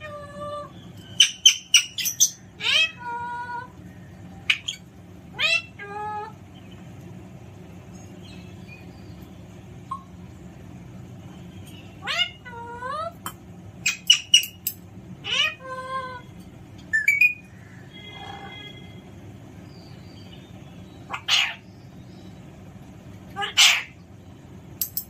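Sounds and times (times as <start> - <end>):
parrot calling: 0.0 - 6.4, 9.8 - 10.2, 11.7 - 16.3, 16.9 - 18.9, 21.0 - 21.7, 23.3 - 24.0.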